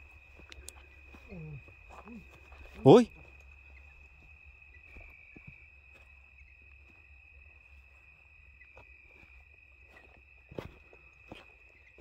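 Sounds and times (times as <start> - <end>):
faint ticks: 0.4 - 0.9.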